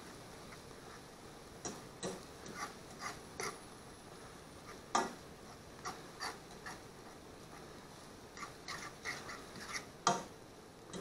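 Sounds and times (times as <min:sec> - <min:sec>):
utensil scraping a frying pan: 0:02.2 - 0:03.7, 0:04.6 - 0:10.0.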